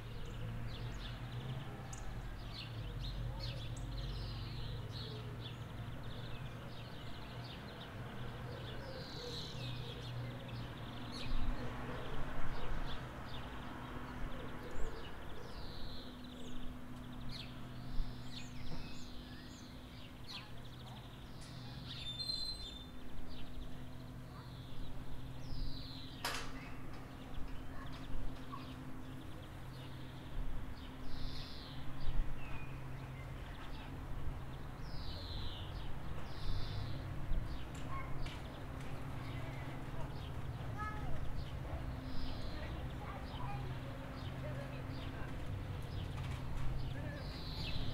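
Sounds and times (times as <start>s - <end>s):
birds chirping: 0.0s - 47.9s.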